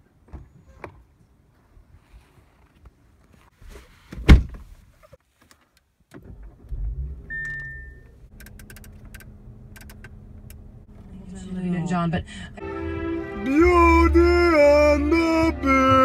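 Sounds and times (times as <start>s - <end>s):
car door shutting: 4.0s - 4.7s
car engine starting and idling: 6.0s - 16.0s
dashboard control clicks: 7.3s - 10.6s.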